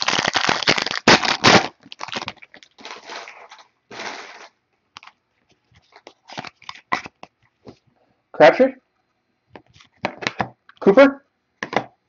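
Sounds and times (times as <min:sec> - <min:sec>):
foil wrapper crinkling: 0:00.0 - 0:07.3.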